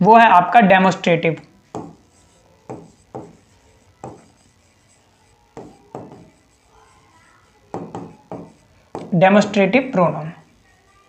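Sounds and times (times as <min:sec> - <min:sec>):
sharp taps on a board: 0:01.7 - 0:02.0, 0:05.6 - 0:06.2, 0:07.7 - 0:09.1.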